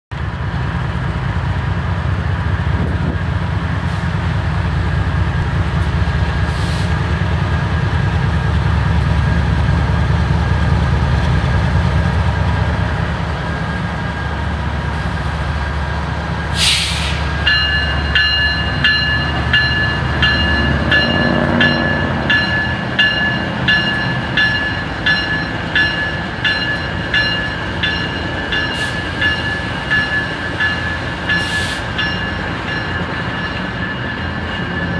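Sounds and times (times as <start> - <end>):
diesel locomotives rumbling: 0.1 - 34.9
short hiss: 16.6 - 17.2
locomotive bell ringing: 17.3 - 34.9.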